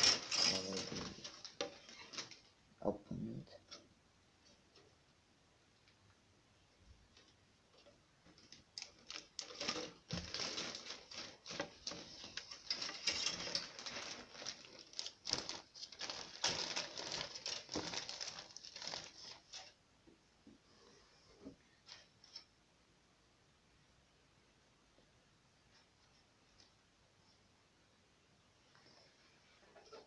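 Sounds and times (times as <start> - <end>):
plastic bags crinkling: 0.0 - 2.6, 8.3 - 19.8.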